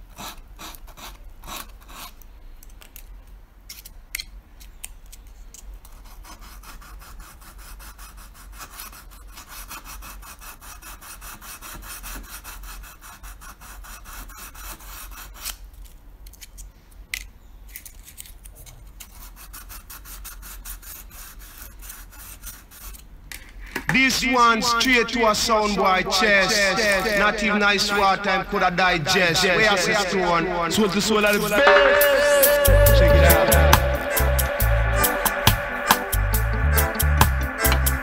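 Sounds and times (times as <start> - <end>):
sandpaper scratching plastic: 0.0 - 2.2, 5.8 - 16.6, 17.7 - 23.1.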